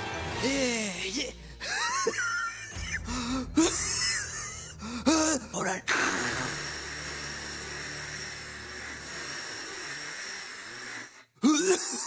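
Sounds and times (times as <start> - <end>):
inhaler hissing: 5.0 - 11.4.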